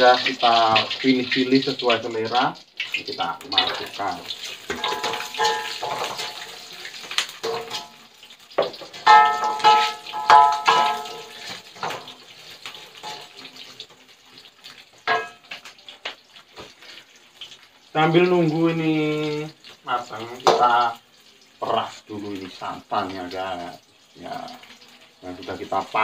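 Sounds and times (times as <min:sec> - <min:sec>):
spices sizzling in a wok: 0:00.0 - 0:26.0
spatula knocking and scraping wok: 0:03.6 - 0:13.4, 0:15.0 - 0:16.7, 0:20.4 - 0:20.9.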